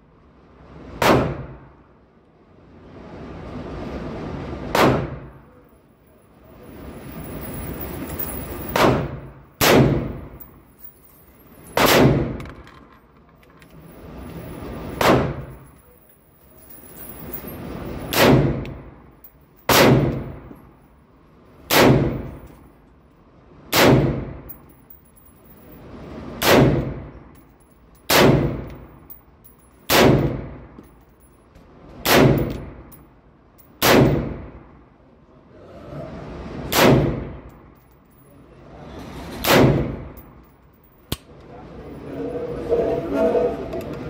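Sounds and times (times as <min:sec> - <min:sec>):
rifle shots in enclosed booth: 0:01.0 - 0:01.8, 0:04.7 - 0:05.3, 0:08.7 - 0:10.4, 0:11.8 - 0:12.7, 0:15.0 - 0:15.5, 0:18.1 - 0:18.8, 0:19.7 - 0:20.5, 0:21.6 - 0:22.4, 0:23.7 - 0:24.5, 0:26.4 - 0:27.1, 0:28.1 - 0:28.8, 0:29.9 - 0:30.8, 0:32.0 - 0:32.9, 0:33.8 - 0:34.7, 0:36.6 - 0:37.5, 0:39.3 - 0:40.2.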